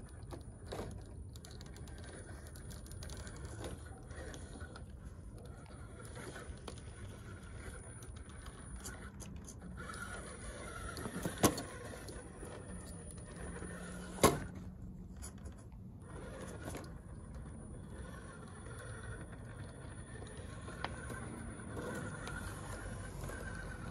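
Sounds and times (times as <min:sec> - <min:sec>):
toy truck motor whirring: 0:00.0 - 0:23.9.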